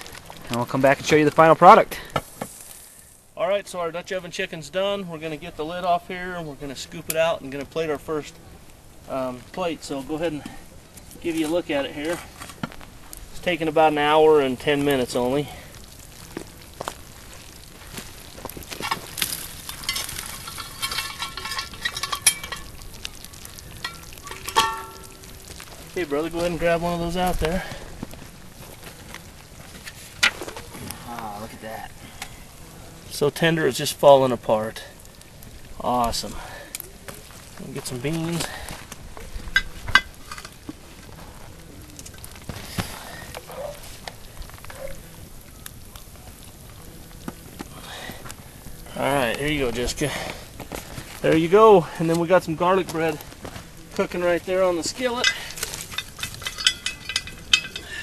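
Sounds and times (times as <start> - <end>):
coals popping and crackling: 0.0 - 58.0
sauce sizzling and bubbling: 1.2 - 3.4, 6.2 - 58.0
spoon clinking on cast iron pot: 23.8 - 25.2.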